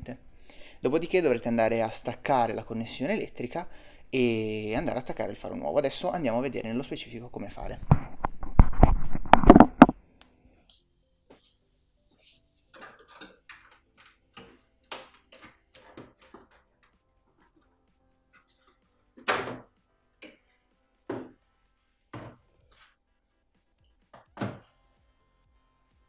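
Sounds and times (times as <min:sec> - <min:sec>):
plastic clips clicking and rattling: 0:12.8 - 0:16.6.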